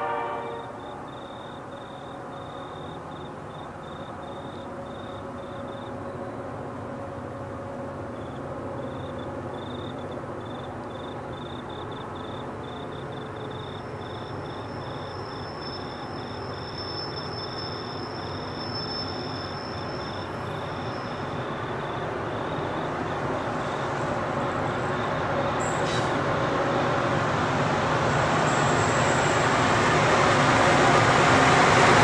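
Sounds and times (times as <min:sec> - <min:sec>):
low rumble of train locomotives: 0:00.0 - 0:32.0
crickets chirping: 0:00.1 - 0:32.0.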